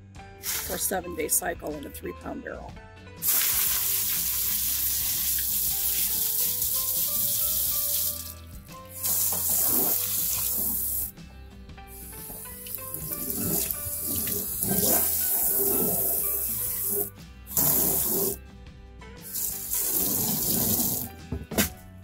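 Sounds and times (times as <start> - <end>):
water running into plastic sink: 3.2 - 11.1, 12.0 - 18.4, 19.3 - 21.1.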